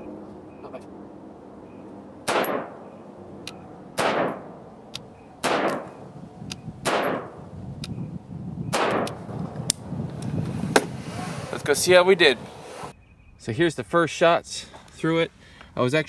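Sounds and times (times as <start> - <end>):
gunshots with echo: 2.2 - 2.9, 4.0 - 4.6, 5.4 - 6.0, 6.8 - 7.4, 8.7 - 9.2.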